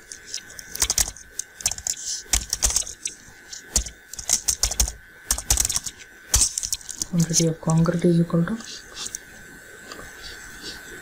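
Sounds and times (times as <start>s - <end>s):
keyboard typing clicks: 0.4s - 7.1s.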